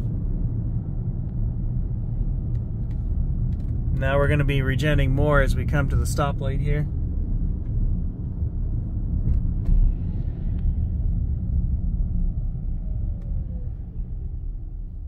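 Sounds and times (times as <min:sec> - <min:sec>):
road and tyre rumble: 0:00.0 - 0:15.0
faint falling whine: 0:09.2 - 0:15.0.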